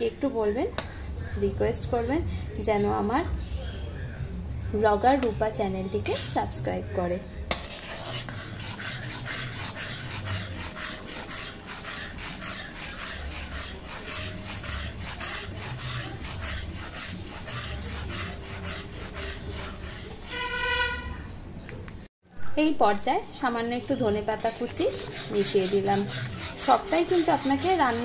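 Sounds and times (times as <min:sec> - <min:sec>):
metal ladle scraping pan: 0:07.5 - 0:21.3, 0:24.0 - 0:28.0.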